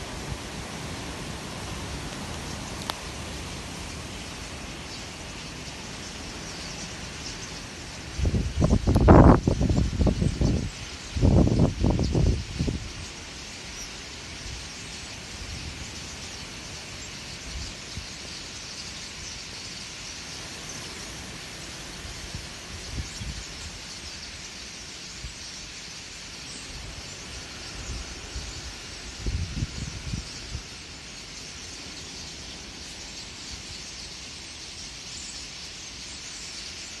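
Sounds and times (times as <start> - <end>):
starlings chattering: 0.0 - 37.0
wind buffeting microphone: 8.1 - 13.0, 26.8 - 30.9.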